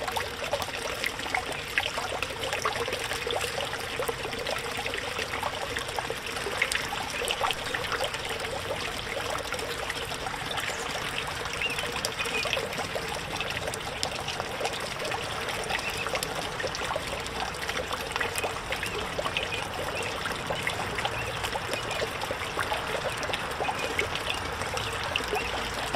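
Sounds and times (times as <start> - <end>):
fountain water splashing into pond: 0.0 - 25.9.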